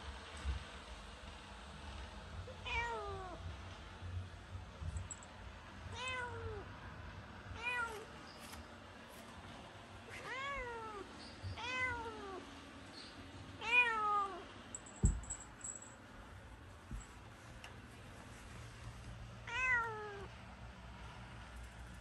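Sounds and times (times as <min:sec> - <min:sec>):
cat meowing: 0:02.6 - 0:03.4, 0:05.9 - 0:06.6, 0:07.6 - 0:08.1, 0:10.1 - 0:12.4, 0:13.6 - 0:14.4, 0:19.5 - 0:20.3.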